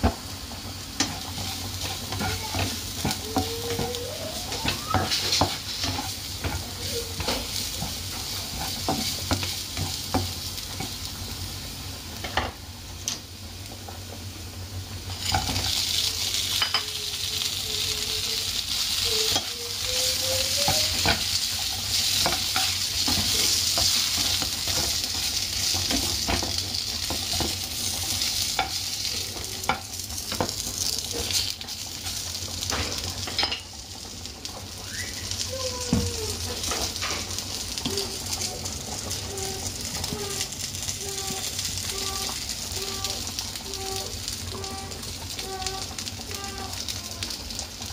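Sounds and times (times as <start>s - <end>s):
garlic sizzling in oil: 0.0s - 47.9s
spatula scraping pan: 1.0s - 10.9s.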